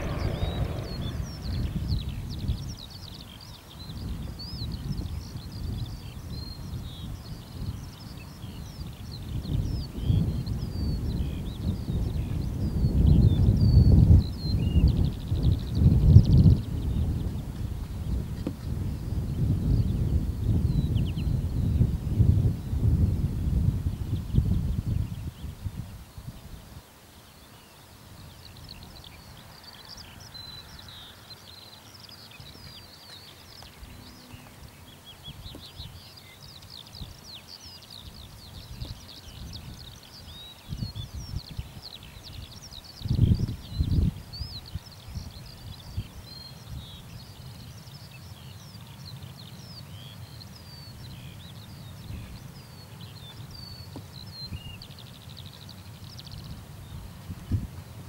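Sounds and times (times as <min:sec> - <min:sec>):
low rumble: 0:00.0 - 0:02.8
distant aircraft engines rumbling: 0:00.0 - 0:03.4, 0:29.4 - 0:35.9
small birds chirping: 0:00.0 - 0:21.9, 0:23.9 - 0:58.0.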